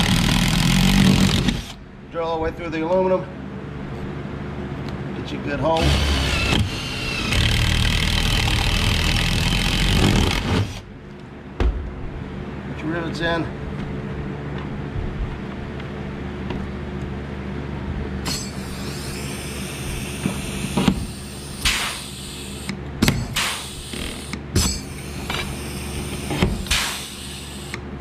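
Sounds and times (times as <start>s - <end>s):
steady low hum: 0.0s - 28.0s
air hissing: 18.5s - 27.8s.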